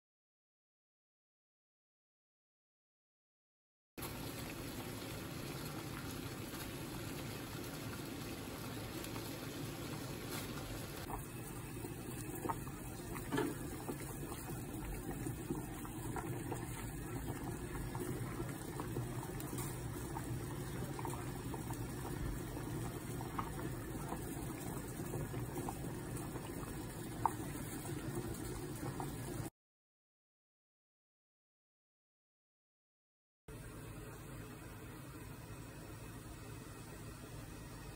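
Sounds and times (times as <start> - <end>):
water boiling in a pot: 4.0 - 29.5, 33.5 - 37.9.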